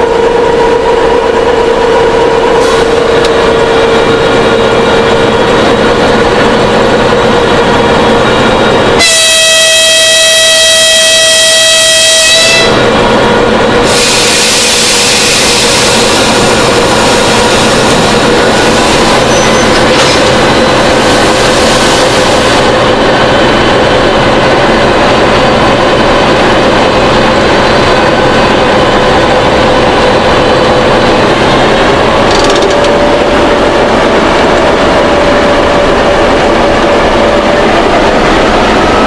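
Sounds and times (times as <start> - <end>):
diesel locomotive engine humming: 0.0 - 39.0
locomotive horn blast: 9.0 - 12.9.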